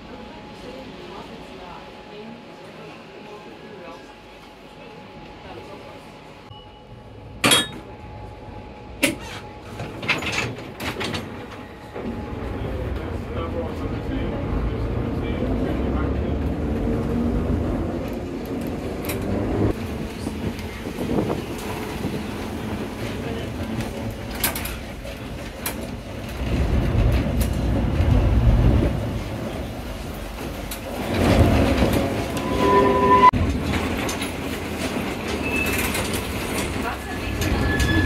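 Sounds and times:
tram rumbling on rails: 0:00.0 - 0:38.0
high squeal: 0:32.2 - 0:33.4, 0:37.4 - 0:38.0.

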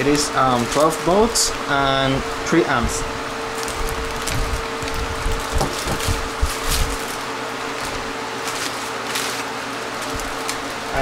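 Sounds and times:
faint constant hum: 0:00.0 - 0:11.0
packaging rustling: 0:00.4 - 0:01.4, 0:03.5 - 0:11.0.

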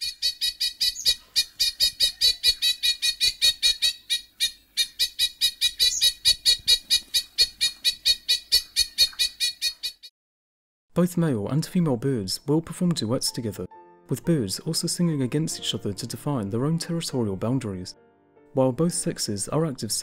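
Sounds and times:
bird alarm call: 0:00.0 - 0:10.1.

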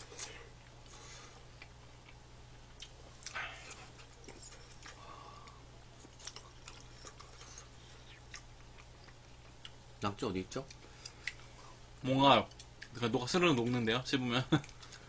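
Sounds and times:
steady low hum: 0:00.0 - 0:15.0
soft chewing mouth clicks: 0:00.2 - 0:03.9, 0:04.6 - 0:09.8, 0:10.6 - 0:11.7.

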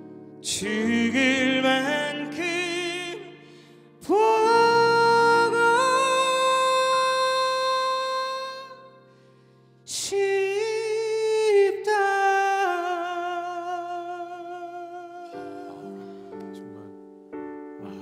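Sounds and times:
man singing a pop ballad: 0:00.4 - 0:09.0, 0:09.9 - 0:16.6
musical accompaniment: 0:12.9 - 0:18.0.

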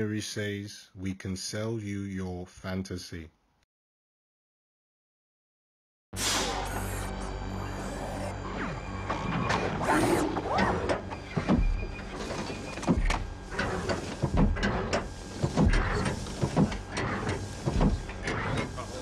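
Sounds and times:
servo whirring and clanking: 0:06.2 - 0:19.0.

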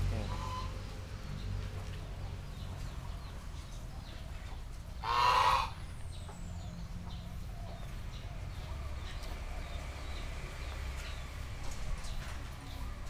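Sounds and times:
goose honking: 0:00.2 - 0:00.8, 0:05.0 - 0:05.8.

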